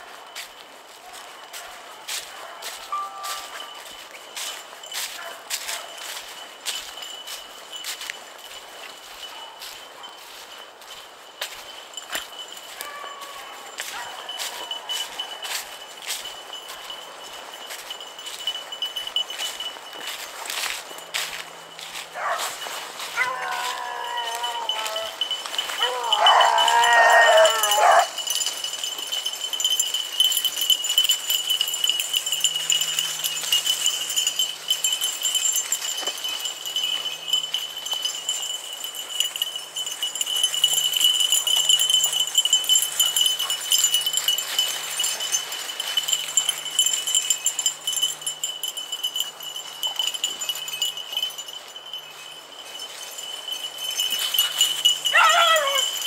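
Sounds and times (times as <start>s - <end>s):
leaves and brush rustling underfoot: 0.0s - 56.0s
faint pack of dogs baying: 1.0s - 3.7s, 9.2s - 10.2s, 12.8s - 15.8s, 22.0s - 28.2s, 54.5s - 56.0s
dog baying howl: 12.9s - 13.6s, 23.1s - 25.2s, 25.8s - 28.2s, 55.1s - 56.0s.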